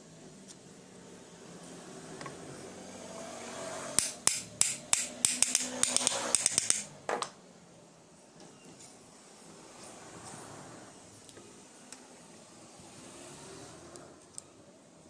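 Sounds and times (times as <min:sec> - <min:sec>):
hammer tapping on metal plate: 0:04.0 - 0:06.9.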